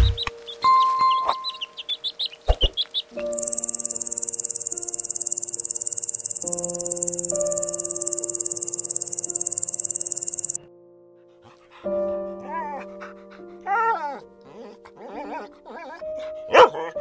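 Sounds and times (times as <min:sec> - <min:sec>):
chick peeping: 0:00.0 - 0:06.6
soft background music: 0:00.0 - 0:17.0
insect trilling: 0:03.2 - 0:10.6.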